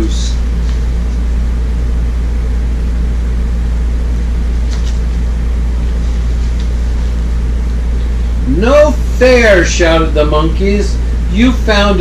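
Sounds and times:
machine droning: 0.0s - 12.0s
book pages rustling: 0.6s - 1.3s, 4.5s - 5.2s, 5.8s - 7.2s.

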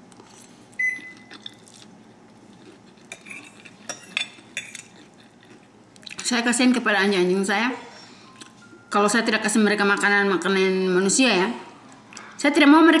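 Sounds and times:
fork clinking on ceramic plate: 3.1s - 5.0s.

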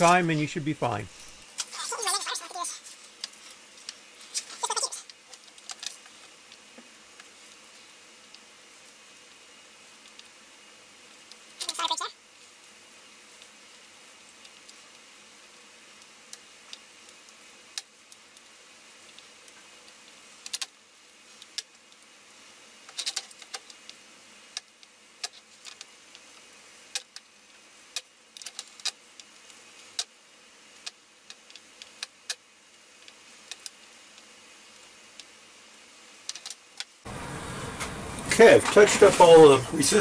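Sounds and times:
faint steady hiss: 0.0s - 40.0s.

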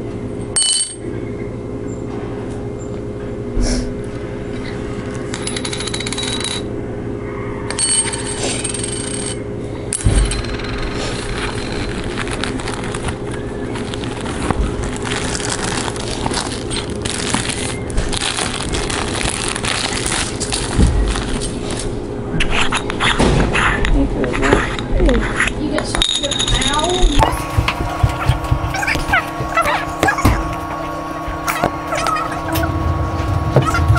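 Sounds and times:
steady low hum: 0.0s - 33.9s
handling noise: 10.0s - 22.0s, 26.2s - 33.9s
sharp knocks: 26.6s - 31.8s.

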